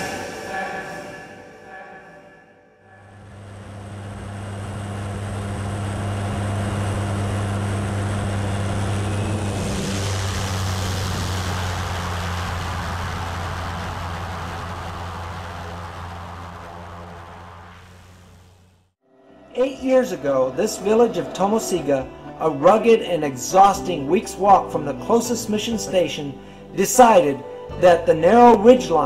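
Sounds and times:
propeller plane engine drone: 0:02.9 - 0:18.9
loud hiss: 0:07.1 - 0:18.8.

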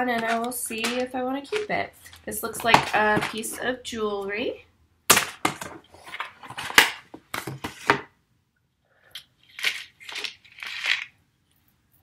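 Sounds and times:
paper envelope crinkling and tearing: 0:00.0 - 0:02.3, 0:09.4 - 0:11.2.

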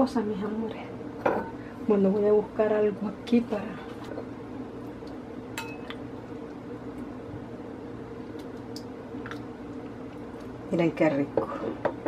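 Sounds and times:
steady low hum: 0:00.0 - 0:12.0
spoon clinking on glass: 0:05.6 - 0:06.0.

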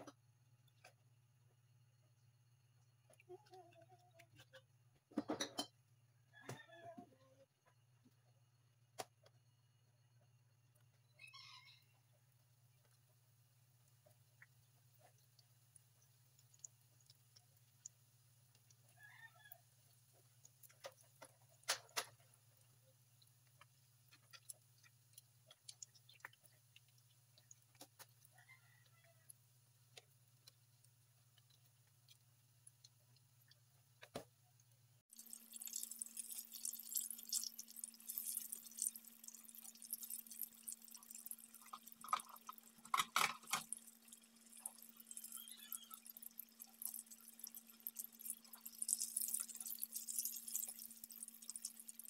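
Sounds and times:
hot oil crackling: 0:12.3 - 0:52.0.

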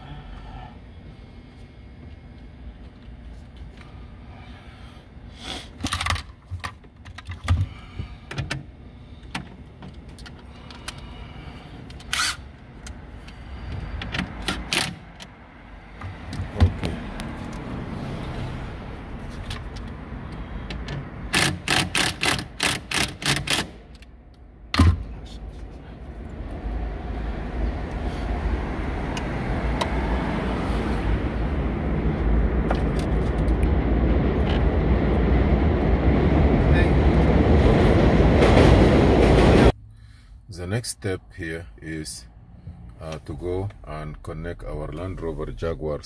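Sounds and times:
clicks and knocks of parts handled: 0:05.8 - 0:07.7.

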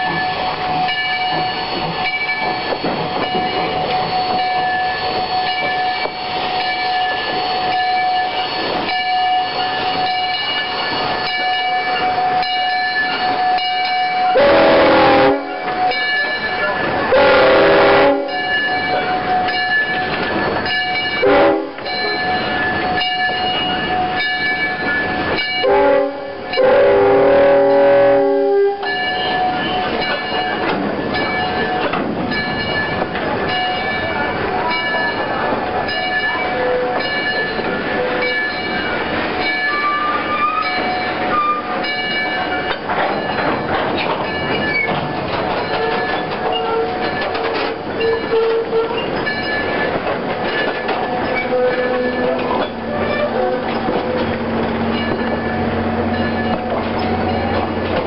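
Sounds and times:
train wheels clacking and squealing: 0:00.0 - 0:26.8, 0:28.8 - 0:58.0
train horn: 0:14.3 - 0:15.7, 0:17.1 - 0:18.5, 0:21.2 - 0:21.8, 0:25.6 - 0:29.0, 0:51.4 - 0:54.2.

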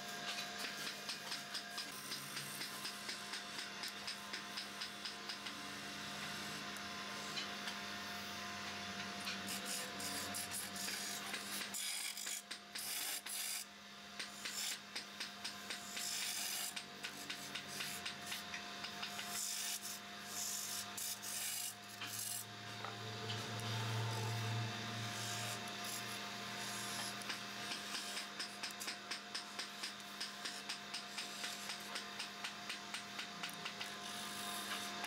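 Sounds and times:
turning tool scraping wood: 0:15.7 - 0:24.3.

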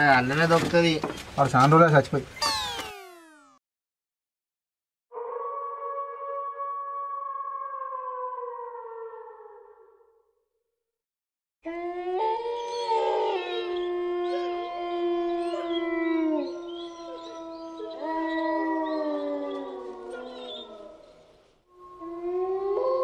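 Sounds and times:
dogs howling: 0:05.2 - 0:09.8, 0:11.7 - 0:21.2, 0:21.8 - 0:23.0.

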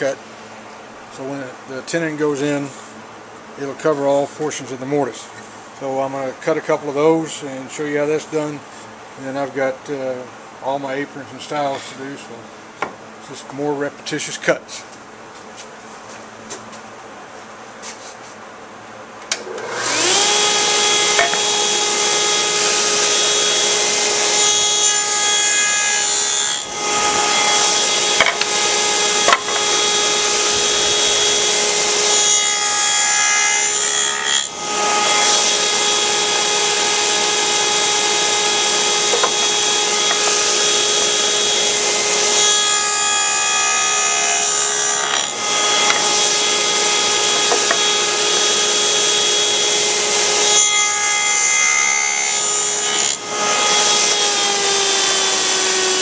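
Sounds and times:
table saw motor whining: 0:19.3 - 0:56.0
saw blade cutting wood: 0:19.7 - 0:56.0.

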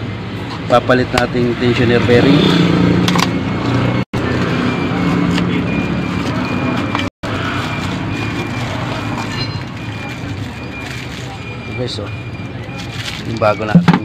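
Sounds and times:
vehicle engine humming: 0:00.0 - 0:14.0
plastic packaging crinkling: 0:12.8 - 0:13.6.

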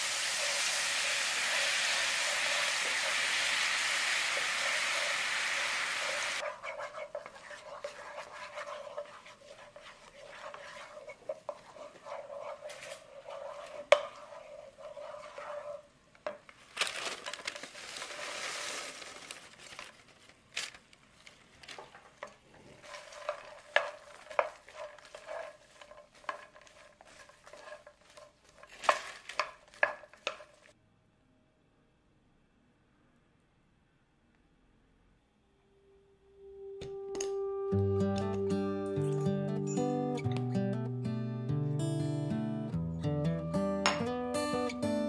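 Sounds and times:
sugar sizzling in a pan: 0:00.0 - 0:16.0, 0:17.3 - 0:19.3, 0:21.8 - 0:30.8
popcorn rustling into a pan: 0:00.0 - 0:30.8
spatula scraping a pan: 0:00.4 - 0:16.4, 0:21.8 - 0:30.7.

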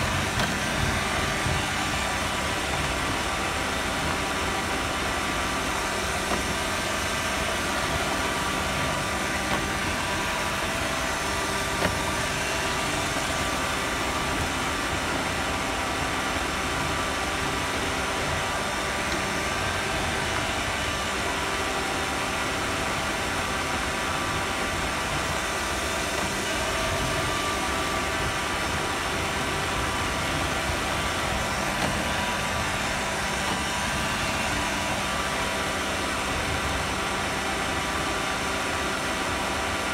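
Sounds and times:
whining tones: 0:00.0 - 0:39.9
robot vacuum whirring: 0:25.9 - 0:36.8.

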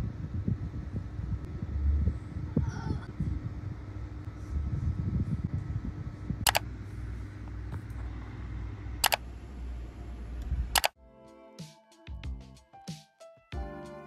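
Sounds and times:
low hum: 0:00.0 - 0:10.9
sharp clicks: 0:06.5 - 0:06.7, 0:09.0 - 0:09.2, 0:10.4 - 0:11.0
soft background music: 0:11.0 - 0:14.0.

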